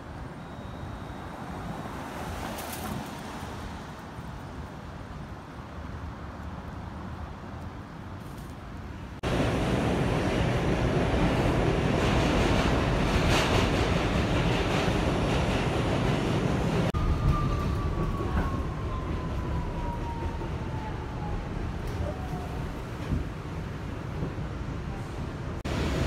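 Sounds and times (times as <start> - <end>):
distant street traffic: 0.0 - 26.0
subway train wheels rumbling on rails: 9.2 - 26.0.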